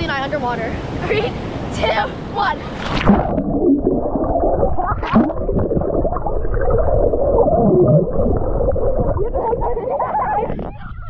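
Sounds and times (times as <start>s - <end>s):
muffled underwater churning: 2.7s - 11.0s
muffled voices squealing: 8.7s - 11.0s.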